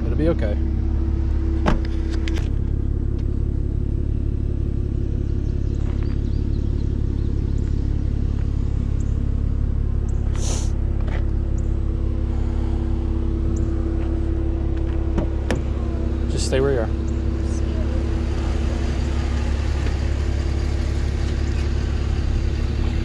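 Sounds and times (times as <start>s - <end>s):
car engine idling: 0.0s - 23.0s
air conditioning hum: 8.7s - 21.2s
short hiss: 10.3s - 10.8s.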